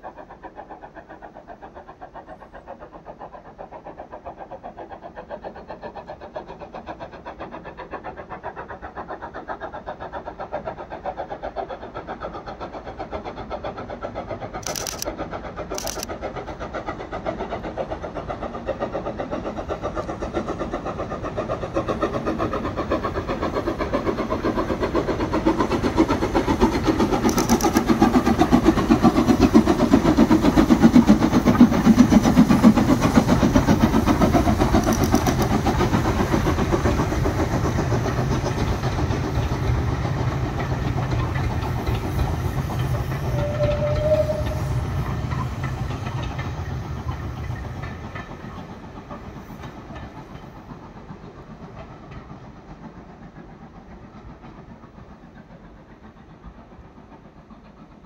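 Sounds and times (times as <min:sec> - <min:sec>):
steam locomotive exhaust beating: 0:00.0 - 0:58.0
coaches rumbling on rails: 0:12.8 - 0:58.0.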